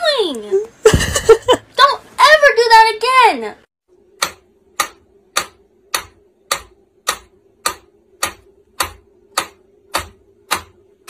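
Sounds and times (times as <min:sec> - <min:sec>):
metronome ticking: 0:04.2 - 0:11.0.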